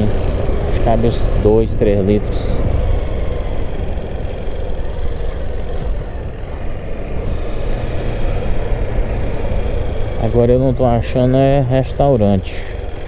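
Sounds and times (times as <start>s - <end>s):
motorcycle engine rumbling: 0.0s - 13.0s
road noise: 0.0s - 13.0s.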